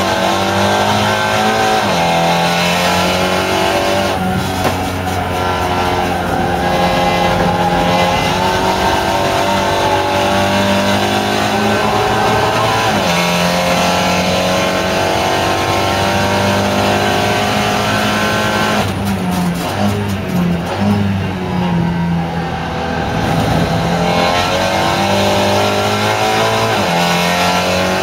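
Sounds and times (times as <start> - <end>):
race car engine revving: 0.0 - 28.0.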